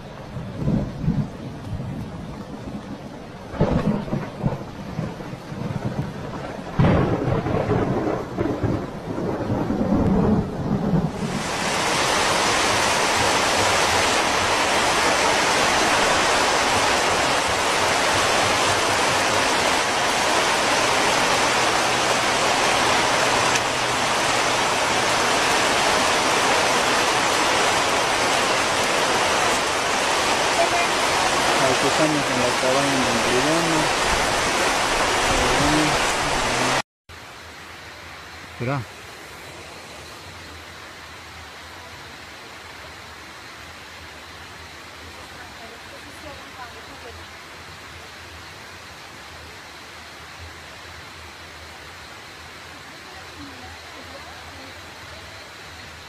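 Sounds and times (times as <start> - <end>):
thunder rumbles: 0.0 - 36.8
torrential rain hiss: 0.0 - 56.0.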